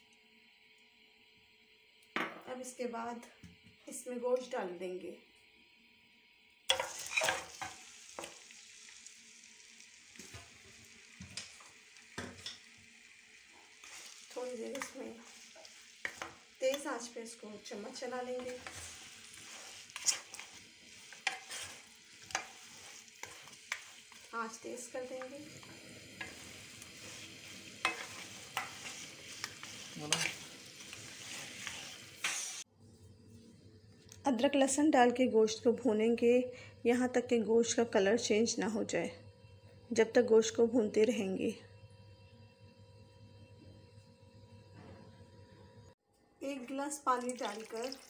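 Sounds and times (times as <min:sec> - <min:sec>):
meat sizzling in hot oil: 0:00.6 - 0:32.7, 0:47.0 - 0:48.0
wooden spatula scraping a pan: 0:06.7 - 0:08.3, 0:13.5 - 0:32.7.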